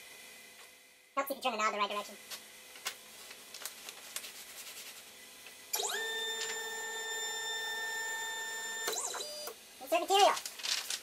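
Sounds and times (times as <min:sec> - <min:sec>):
stepper motor whine: 0:05.7 - 0:09.6.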